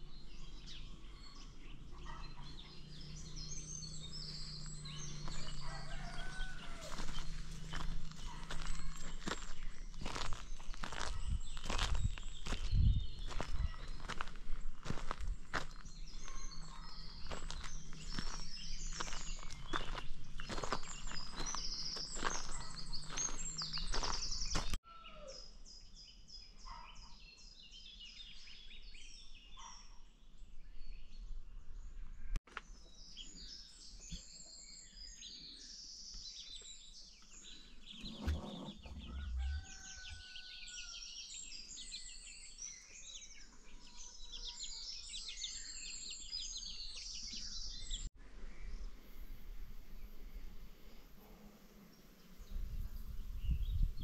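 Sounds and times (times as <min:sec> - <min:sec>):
birds chirping: 0:00.0 - 0:30.1, 0:30.7 - 0:54.0
chickens calling: 0:04.4 - 0:25.3, 0:37.7 - 0:41.0.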